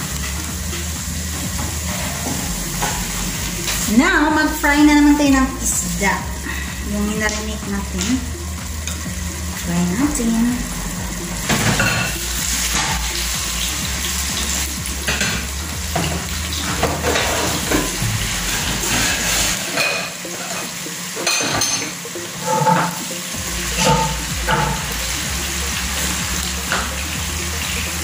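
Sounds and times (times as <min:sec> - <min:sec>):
fish sizzling in hot oil: 0:00.0 - 0:28.0
metal utensil scraping a pan: 0:15.1 - 0:23.1, 0:23.8 - 0:24.9.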